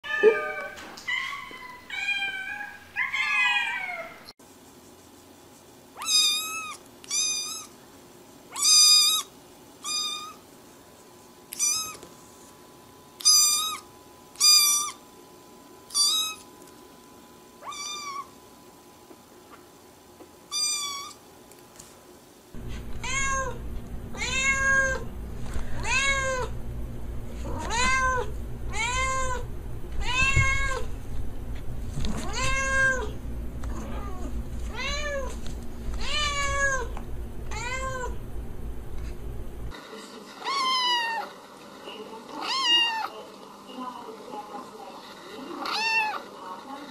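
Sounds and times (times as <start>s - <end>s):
cat meowing lower-pitched: 0.0s - 4.3s, 22.7s - 23.6s, 27.5s - 29.4s, 30.0s - 30.9s
kitten meowing high-pitched: 6.0s - 7.7s, 8.6s - 10.4s, 11.5s - 12.0s, 13.2s - 13.8s, 15.9s - 16.4s, 17.6s - 18.3s, 20.5s - 21.2s
steady low background noise: 21.2s - 39.8s.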